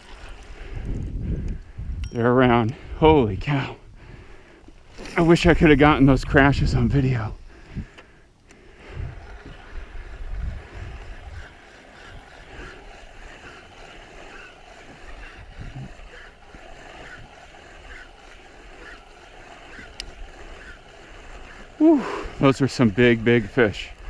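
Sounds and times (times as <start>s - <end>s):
waves lapping against kayak hull: 0.0s - 1.1s, 6.6s - 24.0s
wind buffeting microphone: 0.0s - 4.5s, 5.2s - 8.0s, 8.7s - 24.0s.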